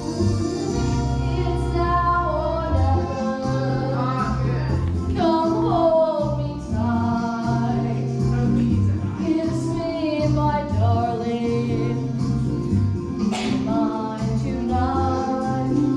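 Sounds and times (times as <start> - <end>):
person singing: 0.0 - 12.3
instrumental backing with bass: 0.0 - 15.9.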